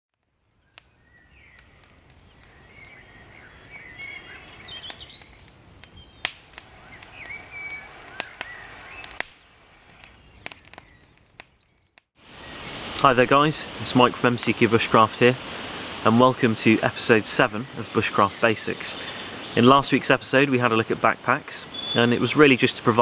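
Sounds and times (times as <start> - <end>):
campfire crackling: 0.1 - 23.0
songbirds chirping: 0.4 - 23.0.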